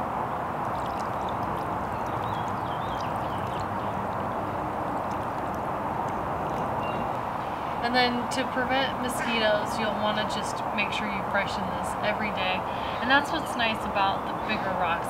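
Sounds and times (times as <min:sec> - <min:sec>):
outdoor background hiss: 0:00.0 - 0:15.0
water trickling onto rocks: 0:00.5 - 0:07.9.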